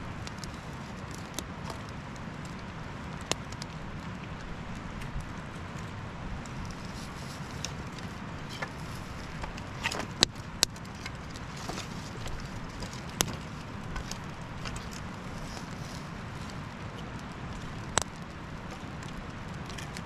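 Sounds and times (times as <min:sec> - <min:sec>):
campfire crackling: 0:00.0 - 0:20.0
sharp pops of fire: 0:00.1 - 0:05.4.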